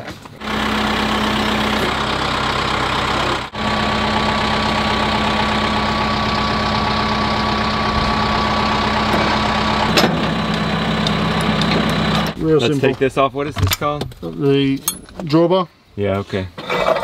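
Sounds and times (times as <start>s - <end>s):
tractor diesel engine idling: 0.4s - 12.4s.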